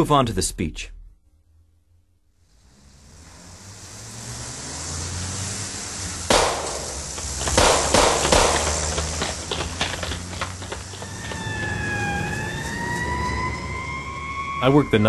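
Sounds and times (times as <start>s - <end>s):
loud bang: 6.3s - 10.8s
sharp bangs like shots: 6.3s - 11.5s.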